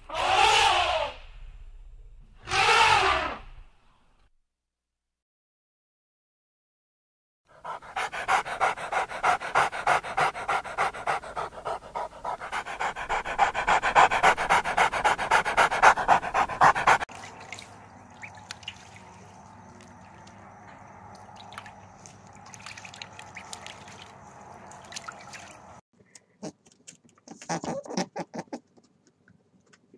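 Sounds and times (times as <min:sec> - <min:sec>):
dog panting: 0:07.5 - 0:17.1.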